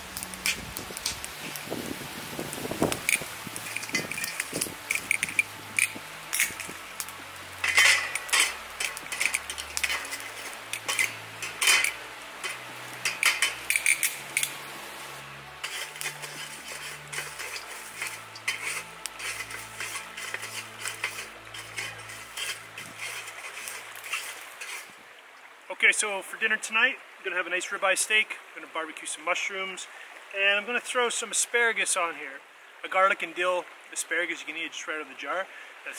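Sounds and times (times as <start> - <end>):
metal tongs clinking on grill: 2.9 - 14.6, 15.6 - 24.8.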